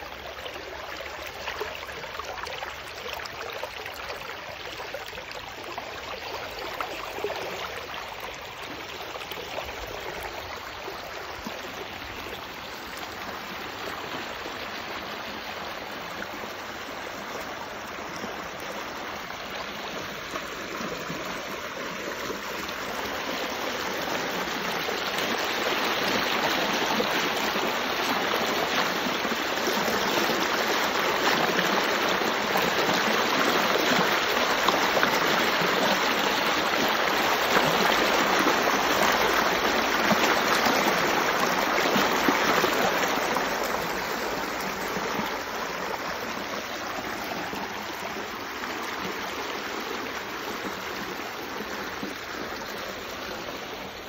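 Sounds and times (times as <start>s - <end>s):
water rushing over rocks: 17.6s - 54.0s.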